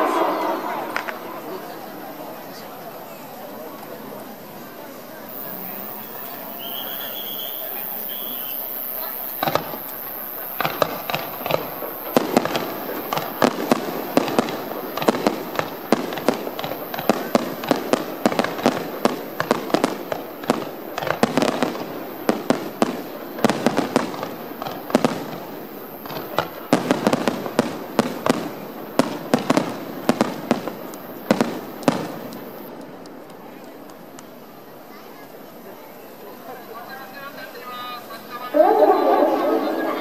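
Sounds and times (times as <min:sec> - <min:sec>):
fireworks bangs: 0:00.0 - 0:02.3, 0:05.2 - 0:33.4
fireworks crackle: 0:00.0 - 0:02.8, 0:03.4 - 0:40.0.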